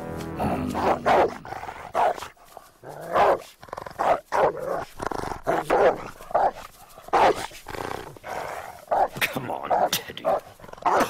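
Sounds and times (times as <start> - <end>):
cartoon dog barking: 0.7 - 1.4, 9.8 - 11.0.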